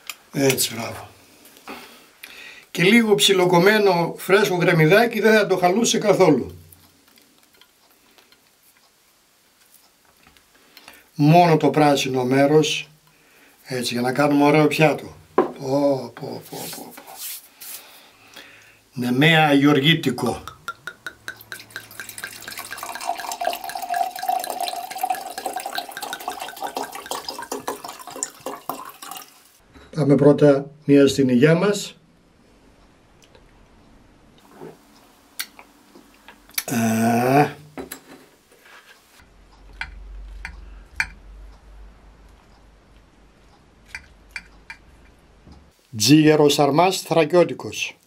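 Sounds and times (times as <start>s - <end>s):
low steady hum: 18.0s - 47.9s
wine pouring into a glass: 20.7s - 29.5s.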